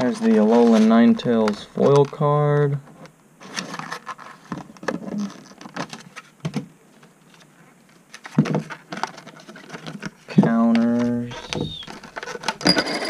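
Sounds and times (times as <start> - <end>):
plastic packaging crackling: 8.0 - 12.7.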